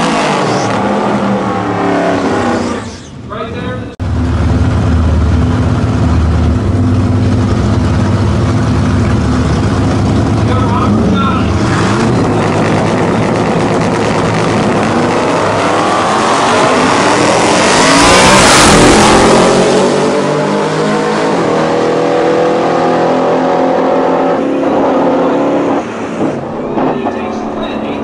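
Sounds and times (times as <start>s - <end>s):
race vehicles accelerating hard: 0.0s - 3.1s, 4.1s - 28.0s.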